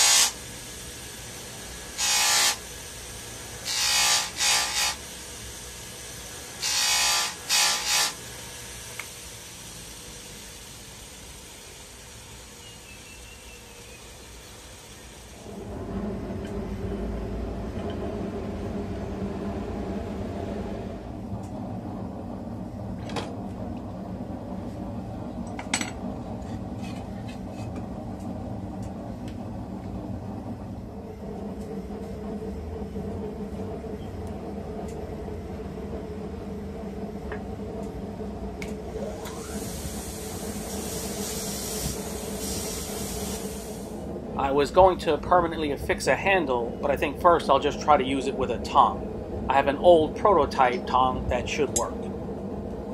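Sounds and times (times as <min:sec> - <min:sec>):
bench grinder motor humming: 0:00.0 - 0:09.6
steel hissing on grinding wheel: 0:00.0 - 0:15.5, 0:39.0 - 0:45.4.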